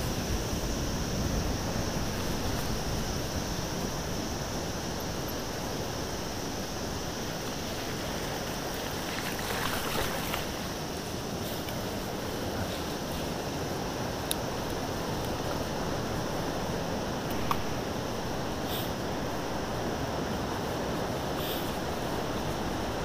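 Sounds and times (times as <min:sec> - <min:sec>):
wind noise on microphone: 0:00.0 - 0:23.0
bike tyres crunching on gravel: 0:07.4 - 0:10.7.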